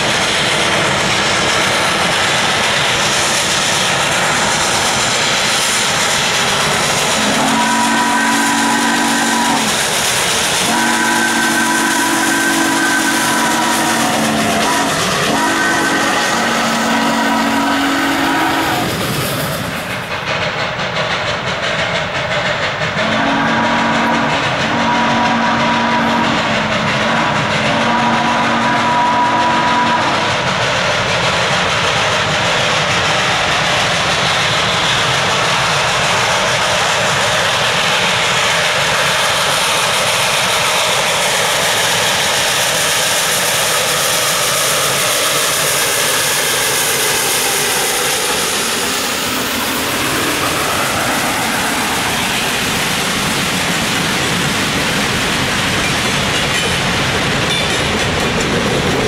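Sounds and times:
freight cars rolling: 0:00.0 - 0:30.8
steam locomotive passing: 0:00.0 - 0:59.0.

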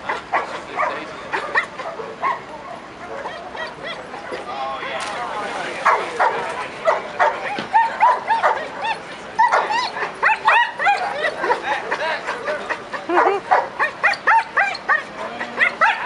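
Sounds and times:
dogs barking and yipping: 0:00.0 - 0:04.5, 0:05.8 - 0:16.0.

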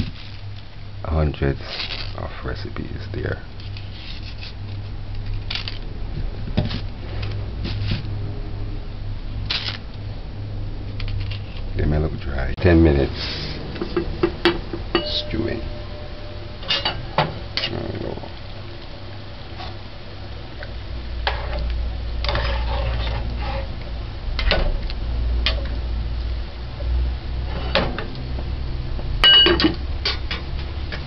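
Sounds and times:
spoon clinking against pot: 0:15.0 - 0:15.4
metal spoon stirring in pot: 0:21.2 - 0:23.8.

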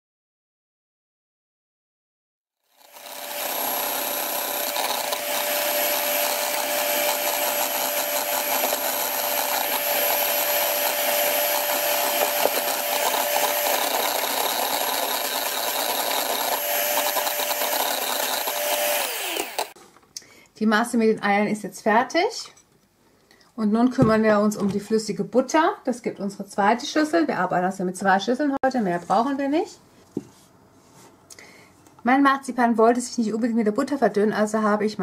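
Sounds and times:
electric hand mixer whining: 0:02.7 - 0:19.8.

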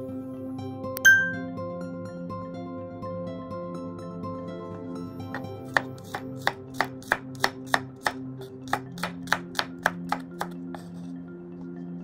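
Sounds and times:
background music: 0:00.0 - 0:12.0
knife chopping on wooden board: 0:05.3 - 0:10.9.

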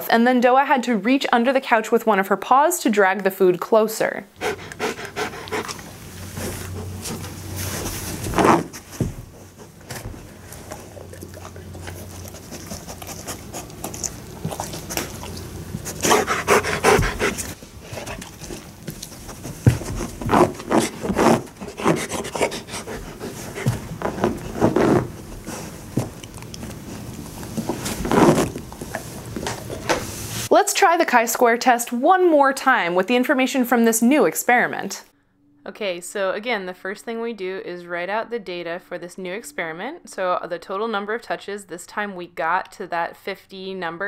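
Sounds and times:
dog panting and snuffling: 0:04.4 - 0:29.8
paw rubbing on carpet and fabric: 0:04.4 - 0:30.4.

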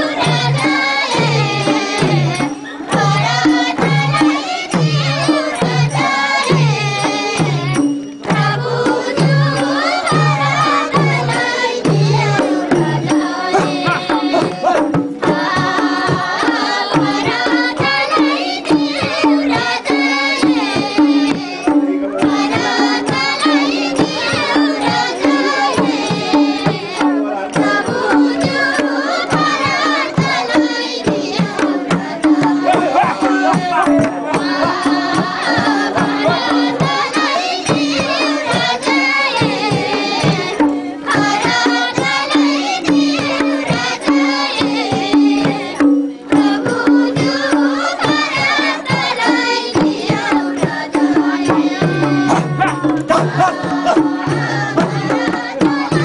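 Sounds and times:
fast hand-drum beat: 0:00.0 - 0:56.0
person singing: 0:12.6 - 0:16.5, 0:32.2 - 0:37.2, 0:51.8 - 0:56.0.

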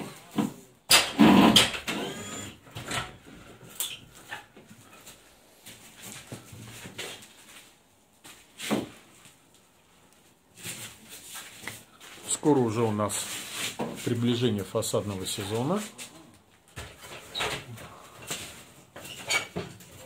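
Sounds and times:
knocks and rustles: 0:16.5 - 0:20.0.

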